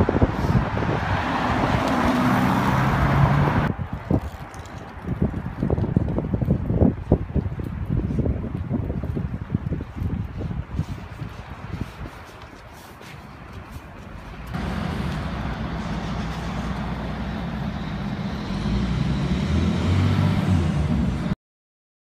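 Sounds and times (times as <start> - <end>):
street noise: 0.0 - 21.4
car engine passing: 0.7 - 3.7, 14.5 - 21.4
tyre hiss on wet street: 10.7 - 20.9.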